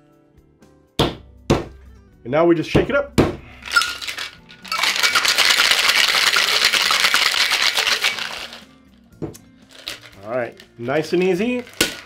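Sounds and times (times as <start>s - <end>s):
ice rattling in metal shaker: 3.6s - 8.8s, 9.7s - 12.0s.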